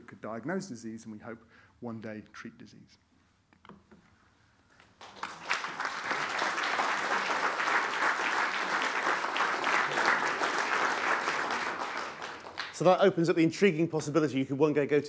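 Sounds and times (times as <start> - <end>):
audience applauding: 5.0 - 13.1.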